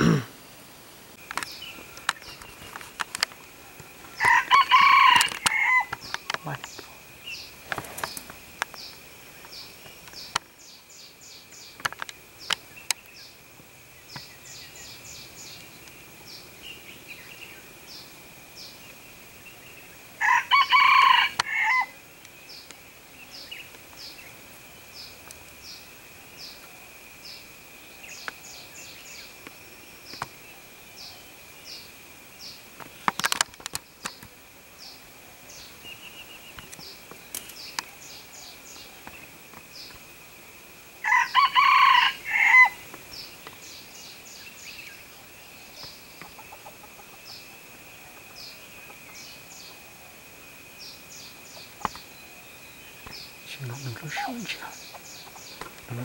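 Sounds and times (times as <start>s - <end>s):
high insect drone: 0.0s - 56.0s
rooster crowing: 4.2s - 6.0s, 20.2s - 22.0s, 41.0s - 42.8s.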